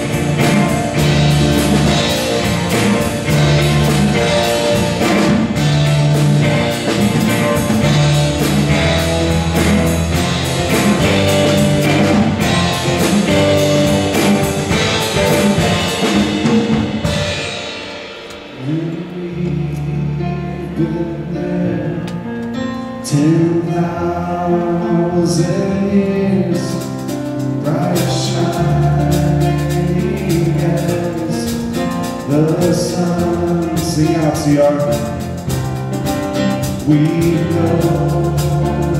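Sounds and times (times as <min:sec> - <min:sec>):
drum kit: 0:00.0 - 0:23.6, 0:24.6 - 0:38.9
person singing: 0:18.5 - 0:22.4, 0:27.6 - 0:35.3, 0:36.6 - 0:38.9.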